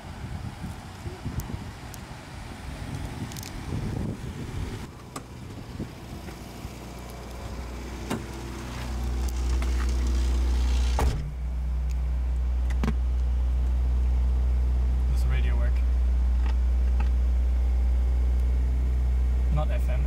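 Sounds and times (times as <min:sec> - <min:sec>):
car engine low hum: 0:00.0 - 0:20.0.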